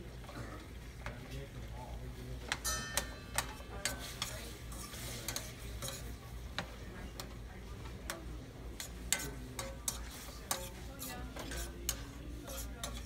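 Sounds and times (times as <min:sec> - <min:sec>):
metal utensil clicking on pan: 0:02.5 - 0:07.4, 0:08.0 - 0:13.0.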